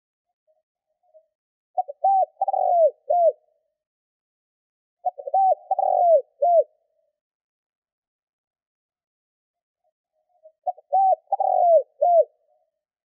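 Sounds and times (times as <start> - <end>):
dove cooing: 1.8 - 3.6, 5.0 - 6.9, 10.4 - 12.6.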